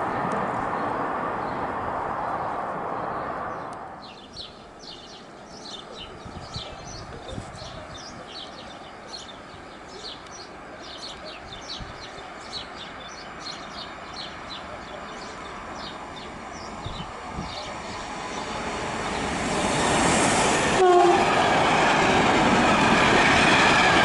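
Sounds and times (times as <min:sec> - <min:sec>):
distant freight train rumble: 0:00.0 - 0:24.0
small birds chirping: 0:03.1 - 0:19.4
rushing noise: 0:16.8 - 0:24.0.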